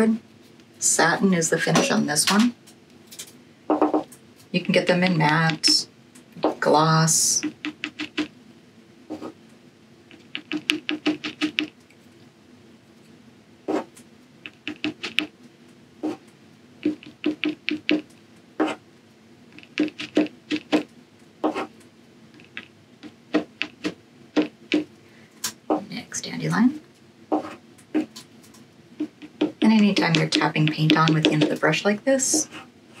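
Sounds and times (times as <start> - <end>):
brush handle tapping on paper: 7.4 - 8.3, 10.1 - 11.7, 14.5 - 15.3, 16.8 - 18.0, 19.6 - 20.8, 22.4 - 24.9, 29.0 - 31.6.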